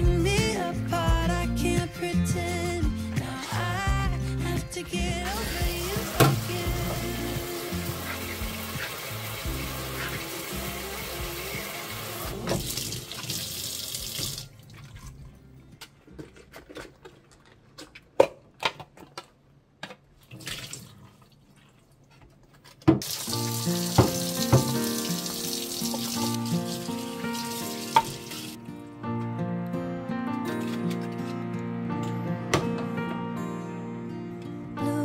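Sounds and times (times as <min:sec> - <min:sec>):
tap running into metal sink: 0:23.0 - 0:25.3, 0:27.8 - 0:28.4.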